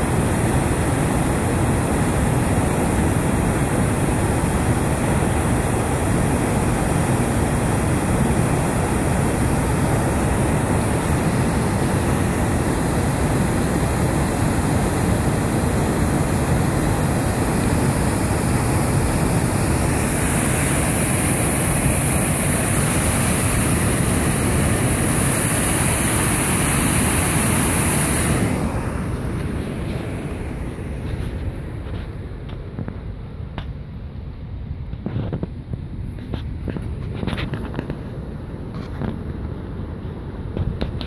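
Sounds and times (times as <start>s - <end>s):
turbulent water rushing: 0.0s - 31.3s.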